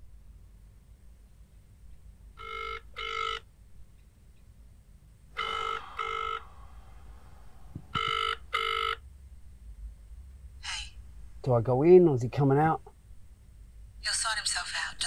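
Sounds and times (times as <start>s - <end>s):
low steady hum: 0.0s - 15.0s
telephone double ring: 8.0s - 9.0s.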